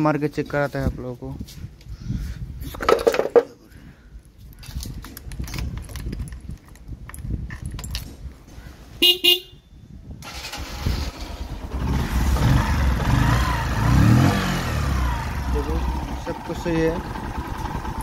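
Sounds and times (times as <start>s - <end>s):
motorcycle horn beeps: 9.0s - 9.9s
motorcycle engine starting and running: 10.2s - 18.0s.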